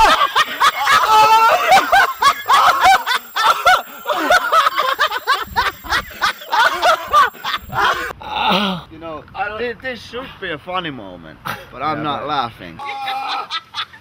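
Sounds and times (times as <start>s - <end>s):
people laughing hard: 0.0s - 8.1s, 12.8s - 14.0s.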